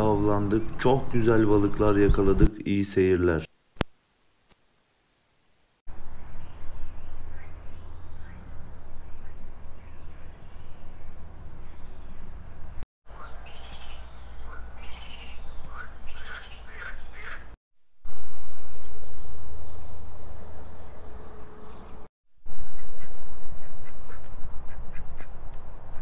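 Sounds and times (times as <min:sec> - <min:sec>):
wind rumbling on microphone: 0:00.6 - 0:02.5
birds calling sharply: 0:13.1 - 0:17.6
ducks quacking: 0:13.1 - 0:17.6, 0:22.8 - 0:25.4.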